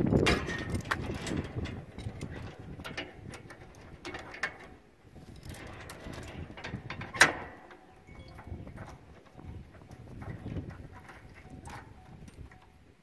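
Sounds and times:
chains clinking and rattling: 0:00.2 - 0:09.4.

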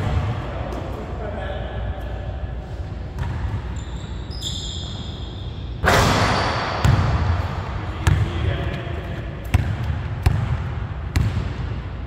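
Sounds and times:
sneaker squeak: 0:03.1 - 0:07.0
basketball bouncing on wooden floor: 0:06.7 - 0:07.4, 0:09.5 - 0:11.6.

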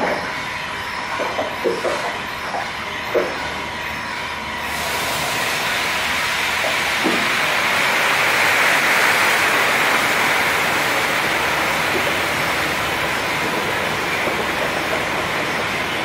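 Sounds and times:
hot oil sizzling: 0:04.6 - 0:16.0.

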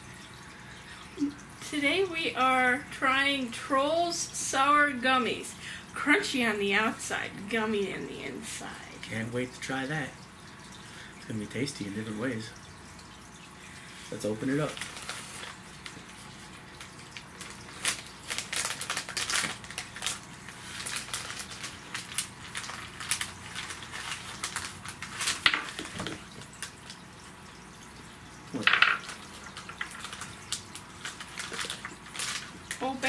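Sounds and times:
plastic wrapper crinkling: 0:14.1 - 0:27.0, 0:28.6 - 0:33.0.

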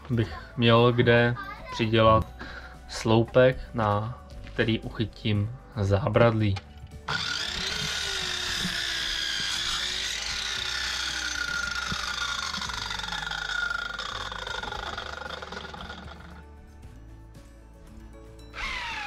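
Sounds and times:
mitre saw blade whining: 0:07.1 - 0:16.4, 0:18.5 - 0:19.0.

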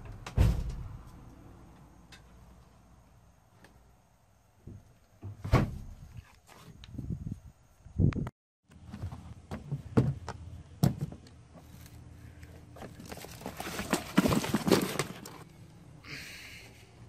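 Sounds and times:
cardboard box handling noises: 0:12.7 - 0:15.4.

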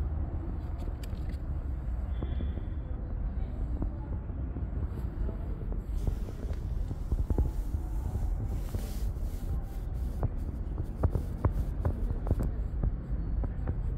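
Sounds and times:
scratchy rubbing of fur: 0:05.0 - 0:13.9.

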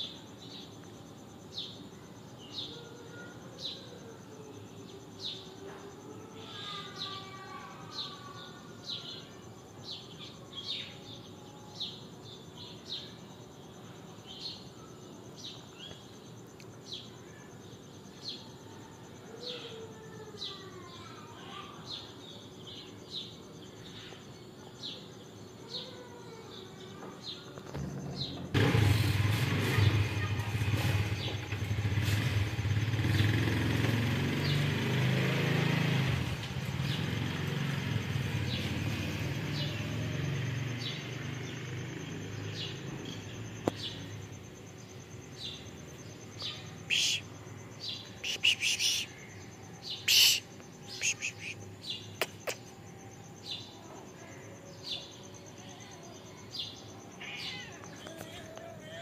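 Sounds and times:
small birds chirping: 0:00.0 - 0:59.0
vehicle engine running: 0:27.7 - 0:47.2.

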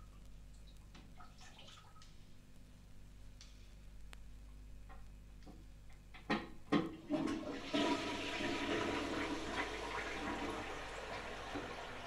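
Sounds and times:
running water: 0:07.0 - 0:12.0.

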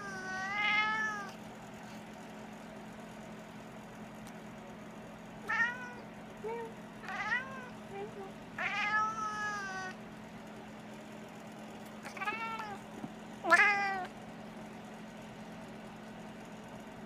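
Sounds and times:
cat meowing: 0:00.0 - 0:01.4, 0:05.5 - 0:06.0, 0:07.0 - 0:07.8, 0:08.6 - 0:10.0, 0:12.0 - 0:12.8, 0:13.4 - 0:14.1.

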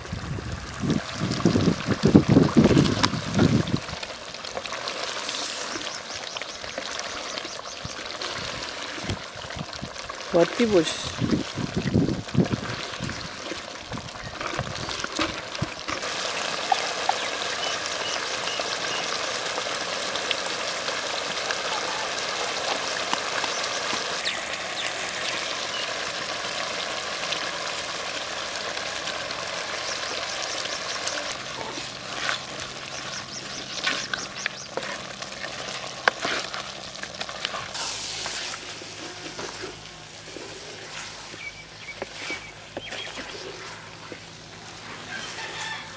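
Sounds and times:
meat sizzling in a clay pot: 0:00.0 - 0:45.9
wooden spatula scraping pot: 0:31.6 - 0:36.7, 0:37.3 - 0:44.2.

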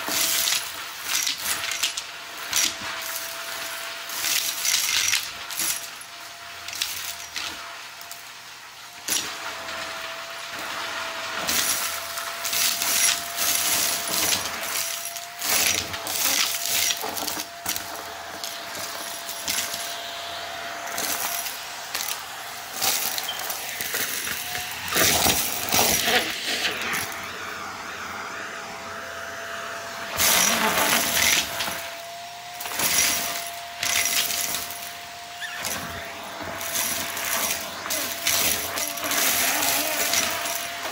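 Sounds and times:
vacuum cleaner whining: 0:00.0 - 0:40.9
debris rattling through vacuum: 0:09.1 - 0:27.8, 0:30.0 - 0:40.9.

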